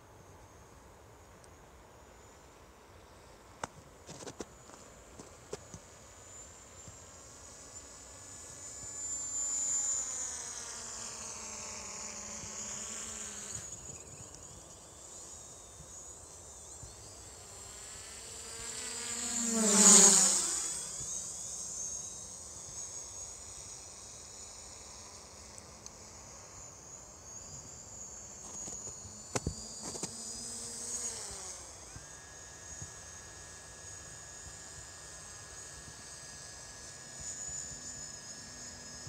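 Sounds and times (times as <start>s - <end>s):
drone propellers buzzing: 6.0s - 39.0s.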